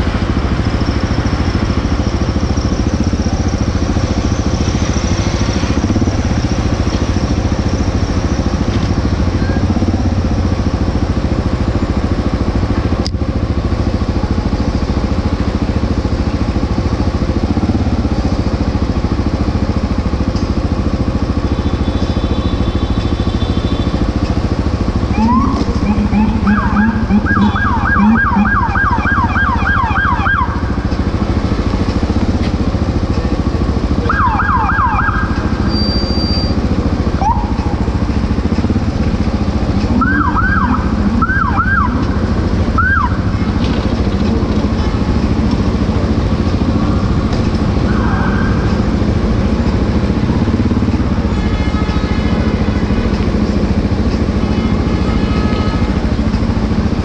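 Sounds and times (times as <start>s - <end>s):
traffic rumble: 0.0s - 57.0s
emergency siren yelping: 25.0s - 31.0s, 33.9s - 35.8s, 36.4s - 38.0s, 39.8s - 43.4s, 47.7s - 49.1s.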